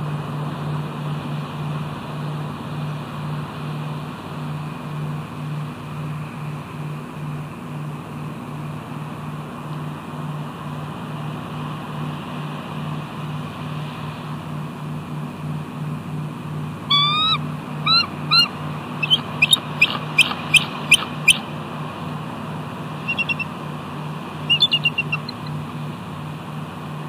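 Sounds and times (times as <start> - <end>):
eagle calling: 16.8 - 21.7, 22.8 - 25.8
low hum: 22.9 - 25.9.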